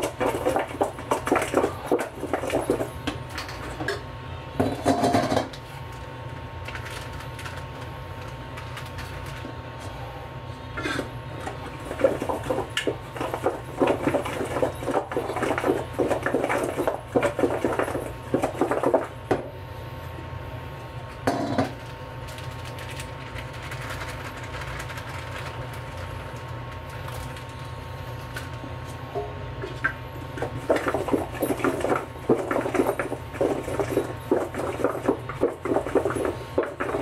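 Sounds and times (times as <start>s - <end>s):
kitchen items clattering: 0.0s - 4.0s, 4.6s - 5.6s, 10.8s - 19.3s, 21.3s - 21.8s, 29.1s - 37.0s
steady low hum: 0.0s - 37.0s.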